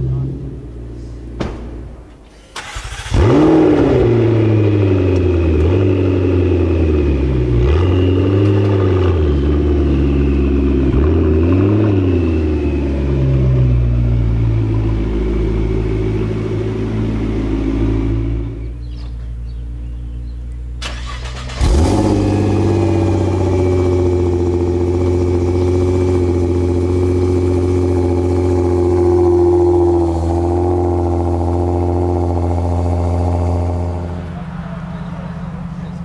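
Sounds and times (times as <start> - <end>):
car engine starting and idling: 0.0 - 36.0
engine throttle blips: 0.0 - 36.0.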